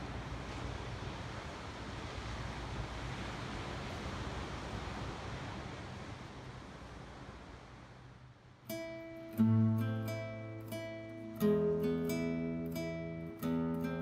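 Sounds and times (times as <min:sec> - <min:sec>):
wind rumble on microphone: 0:00.0 - 0:08.7
ocean surf: 0:00.0 - 0:14.0.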